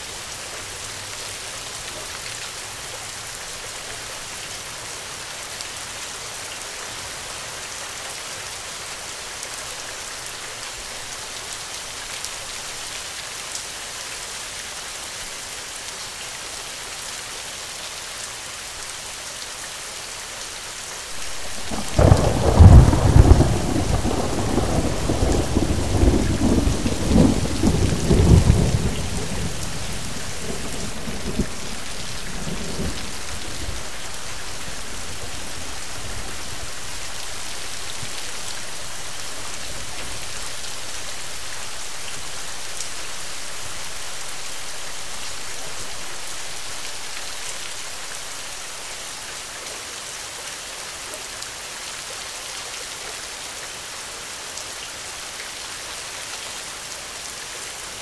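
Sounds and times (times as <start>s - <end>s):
steady rain: 0.0s - 58.0s
thunder rumbling: 21.2s - 36.8s.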